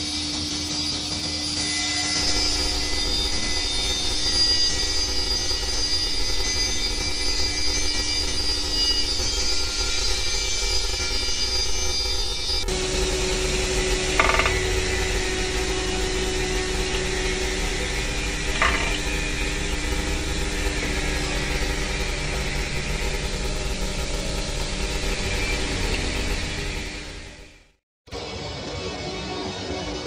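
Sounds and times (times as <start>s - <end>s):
workshop machinery rumble: 2.2s - 27.8s
metallic knocks: 14.2s - 14.7s, 18.6s - 19.0s.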